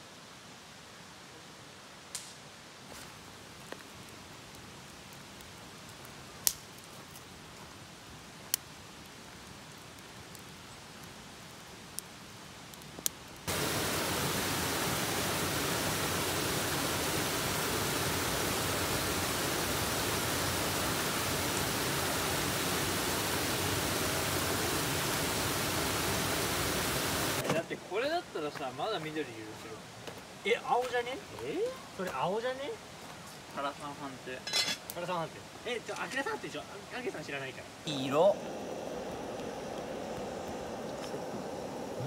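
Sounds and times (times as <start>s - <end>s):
fire popping: 2.1s - 16.4s, 35.8s - 42.0s
wood fire crackling: 2.1s - 42.0s
waterfall pouring over rocks: 13.5s - 27.4s, 35.0s - 42.0s.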